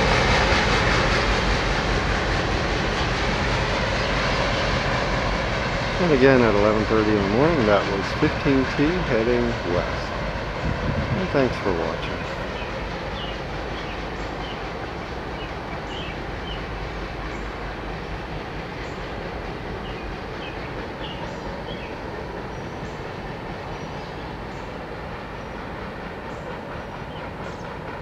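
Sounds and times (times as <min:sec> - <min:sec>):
train wheels clattering on rails: 0:00.0 - 0:28.0.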